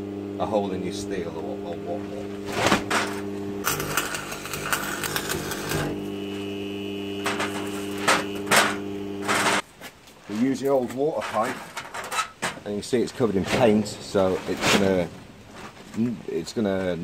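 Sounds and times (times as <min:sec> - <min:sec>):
welder low hum: 0:00.0 - 0:09.6
welding arc crackling: 0:00.2 - 0:09.7.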